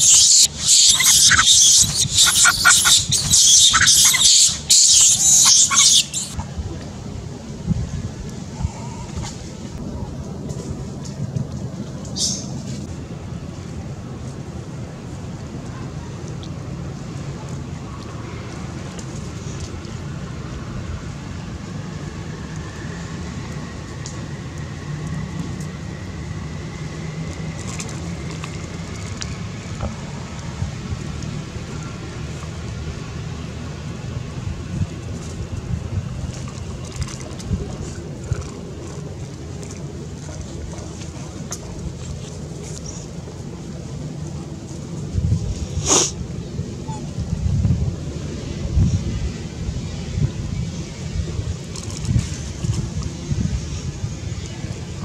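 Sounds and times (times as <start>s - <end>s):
monkey screaming: 0.0s - 6.4s
low outdoor rumble: 0.0s - 55.0s.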